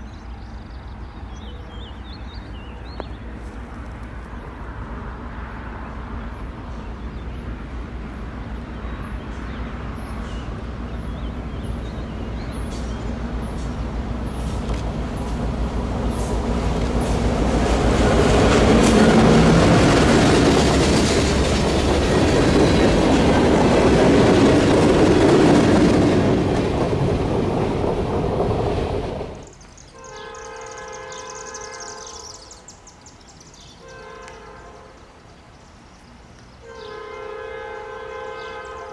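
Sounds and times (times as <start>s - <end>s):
diesel locomotives passing: 0.0s - 38.9s
train wheel noise: 3.2s - 29.8s
distant locomotive horn: 15.6s - 20.8s, 30.0s - 32.6s, 33.7s - 35.2s, 36.6s - 38.9s.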